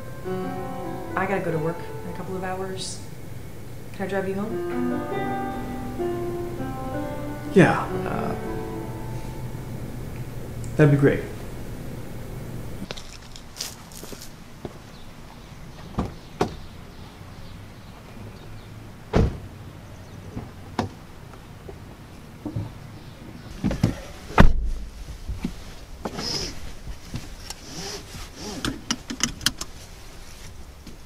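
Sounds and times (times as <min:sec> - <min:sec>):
car door slamming: 0:19.1 - 0:19.5
seatbelt clicks and rustling: 0:27.4 - 0:29.8.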